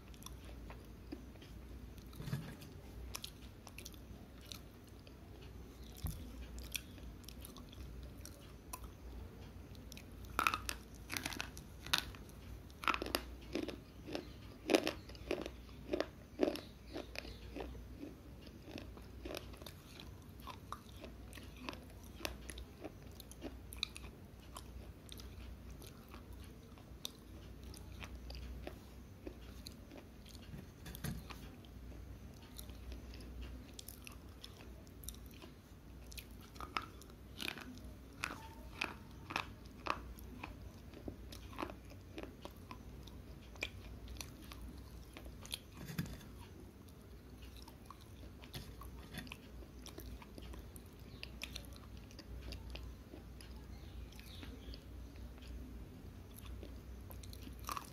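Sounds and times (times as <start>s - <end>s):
slate pencils crunching when chewed: 0.0s - 57.9s.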